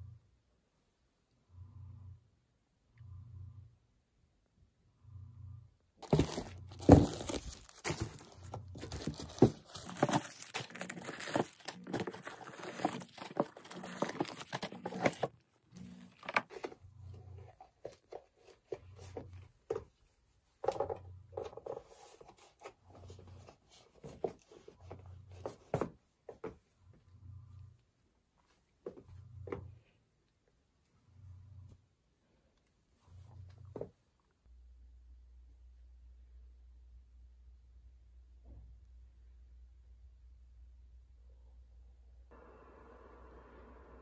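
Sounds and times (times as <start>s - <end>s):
tissue paper crinkling and rustling: 6.0s - 16.7s.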